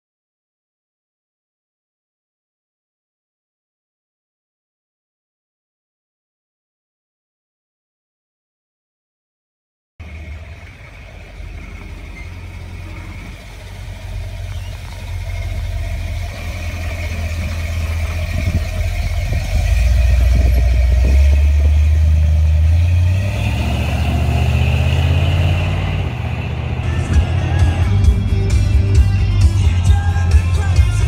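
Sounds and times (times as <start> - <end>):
truck engine rumbling: 10.0 - 31.0.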